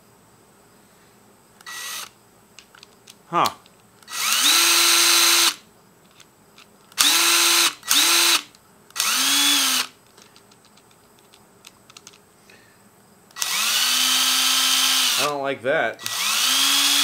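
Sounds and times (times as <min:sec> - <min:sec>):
impact driver motor whine: 0:01.6 - 0:02.2, 0:04.0 - 0:05.6, 0:07.0 - 0:10.0, 0:13.4 - 0:15.4, 0:16.0 - 0:17.0.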